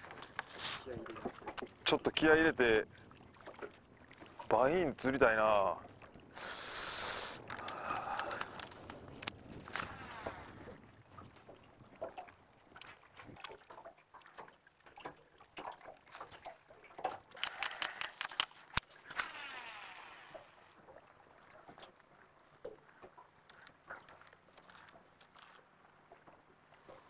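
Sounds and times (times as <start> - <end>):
hissing whooshes: 6.4 - 7.4
fishing reel clicks and taps: 17.4 - 19.6.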